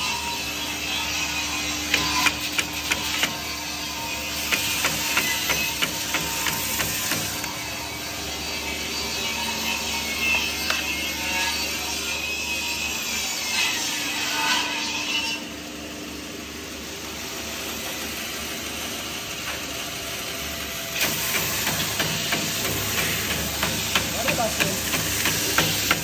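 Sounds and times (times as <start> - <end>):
sanding machine sanding wood: 21.0 - 26.0.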